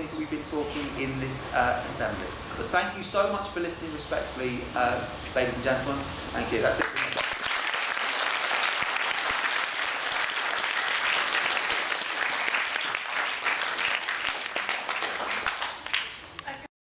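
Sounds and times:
audience applauding: 6.8 - 16.2.

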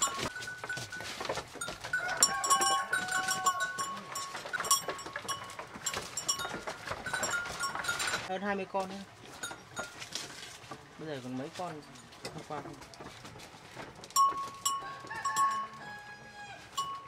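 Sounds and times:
leaves rustling and crackling: 9.9 - 14.0.

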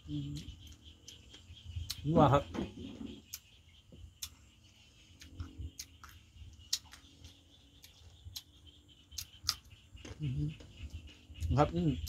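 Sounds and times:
chewing and lip-smacking: 4.2 - 4.4, 5.1 - 11.6.

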